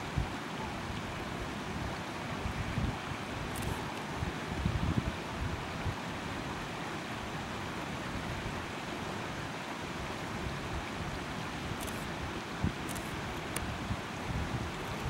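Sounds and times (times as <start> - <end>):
stream water rushing over rocks: 0.0 - 15.0
wind buffeting microphone: 11.7 - 15.0.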